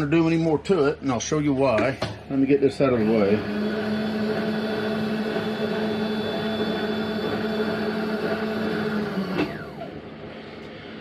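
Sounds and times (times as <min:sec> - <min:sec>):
milling machine motor humming: 0:02.3 - 0:11.0.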